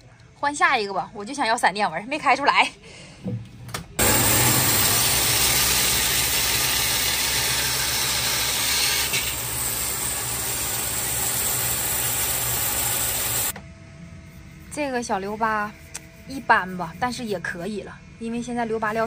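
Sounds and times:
band saw cutting wood: 0:04.0 - 0:13.5
low motor hum: 0:04.0 - 0:13.7.

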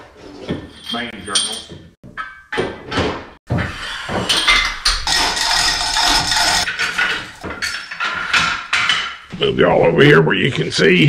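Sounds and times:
metallic clatter and scraping: 0:03.6 - 0:09.3.

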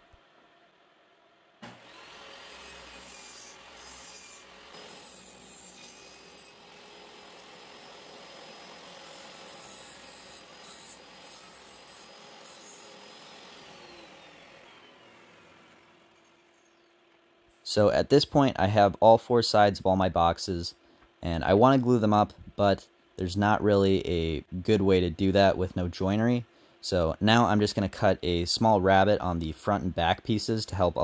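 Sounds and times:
table saw ripping a board: 0:01.6 - 0:16.4.

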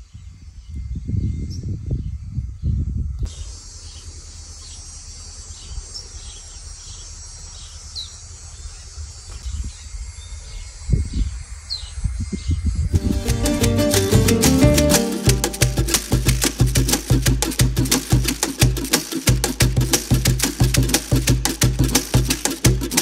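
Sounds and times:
wind buffeting microphone: 0:00.1 - 0:03.3
high insect drone: 0:03.3 - 0:12.3.

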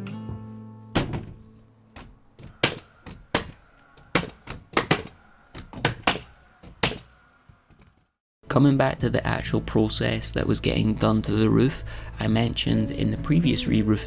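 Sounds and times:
hammer nailing timber boards: 0:02.0 - 0:07.1.

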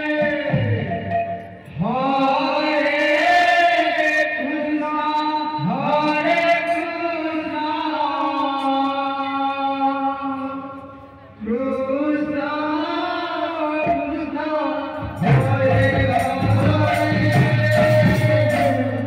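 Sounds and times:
man chanting into microphone: 0:01.8 - 0:10.7.

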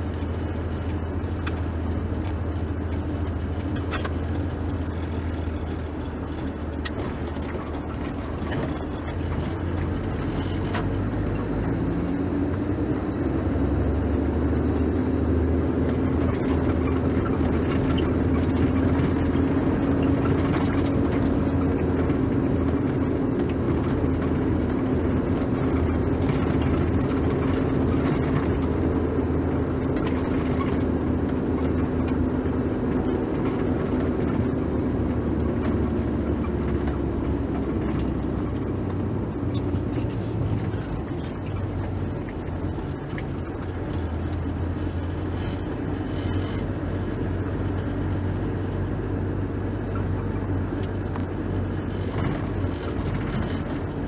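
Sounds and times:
car engine drone: 0:00.0 - 0:54.0
road noise: 0:00.0 - 0:54.0.

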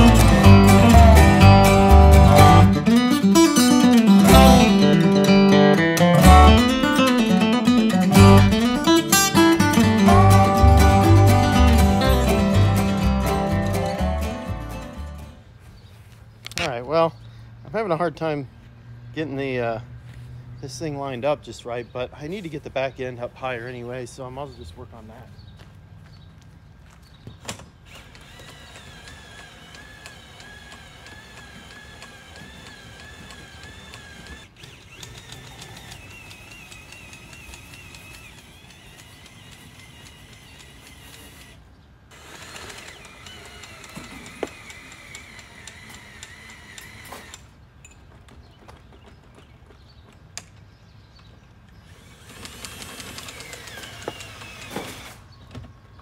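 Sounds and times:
jack ratcheting clicks: 0:27.9 - 0:47.5, 0:51.9 - 0:54.8
squeaking crank: 0:27.9 - 0:47.5.

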